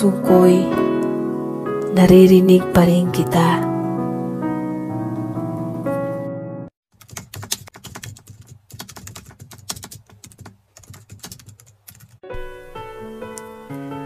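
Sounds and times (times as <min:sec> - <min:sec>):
music with sustained notes: 0:00.0 - 0:06.7, 0:12.2 - 0:14.0
keyboard typing: 0:07.0 - 0:12.2.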